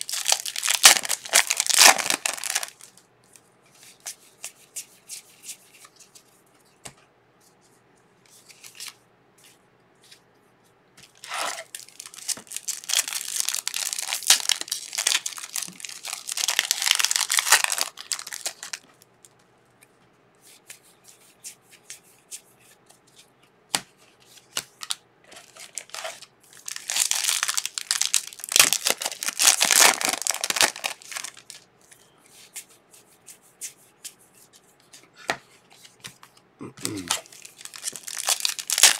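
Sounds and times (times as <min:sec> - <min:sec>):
card pack wrappers tearing: 0:00.0 - 0:02.9, 0:11.2 - 0:18.8, 0:25.4 - 0:31.6, 0:36.8 - 0:38.9.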